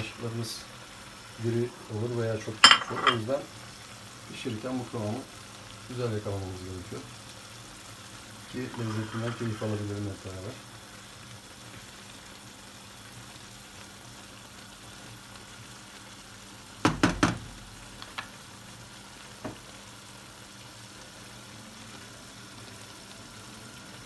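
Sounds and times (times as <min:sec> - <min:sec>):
food sizzling in a pan: 0:00.0 - 0:24.0
spatula knocks: 0:16.8 - 0:17.4.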